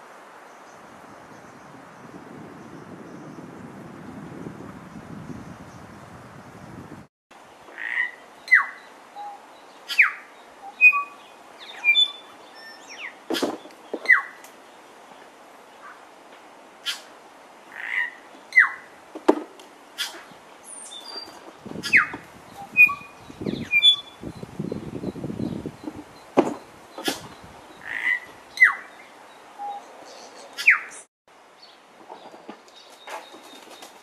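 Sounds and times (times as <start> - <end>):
bird singing: 7.8 - 14.4, 17.8 - 18.9, 20.0 - 34.0.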